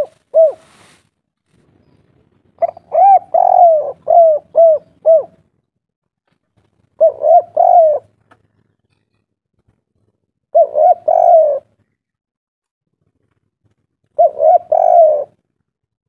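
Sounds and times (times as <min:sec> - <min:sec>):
dove cooing: 0:00.0 - 0:01.0, 0:02.6 - 0:05.5, 0:06.9 - 0:08.2, 0:10.5 - 0:11.8, 0:14.2 - 0:15.5.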